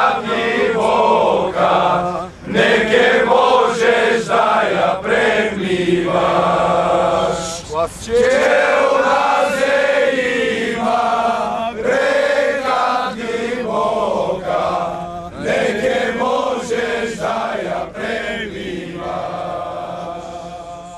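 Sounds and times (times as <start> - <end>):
women singing in unison: 8.4 - 20.9.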